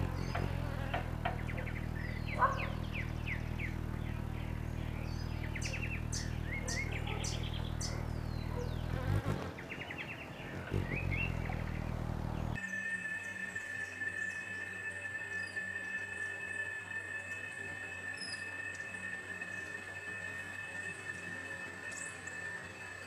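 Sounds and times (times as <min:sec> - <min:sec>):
birds chirping and trilling: 0:00.0 - 0:23.0
low buzzing hum: 0:00.0 - 0:23.0.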